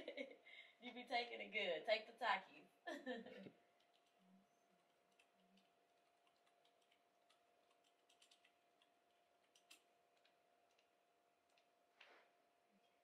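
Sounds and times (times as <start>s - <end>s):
faint steady hum: 0.0s - 13.0s
keyboard clicks: 4.8s - 11.7s.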